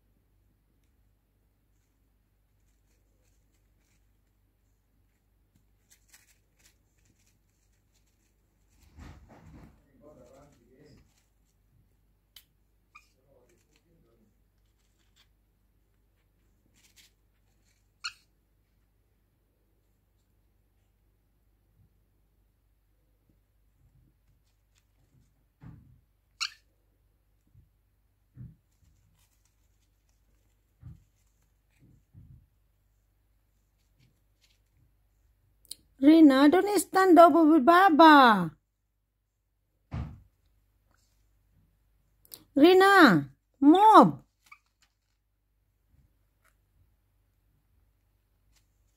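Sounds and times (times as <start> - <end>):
parrot chirp: 26.4 - 26.7.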